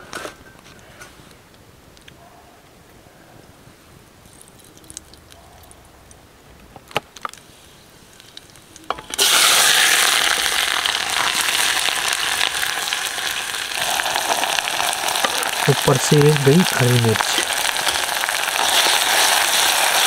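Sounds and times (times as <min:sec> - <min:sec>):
onions sizzling in hot oil: 0:08.9 - 0:20.0.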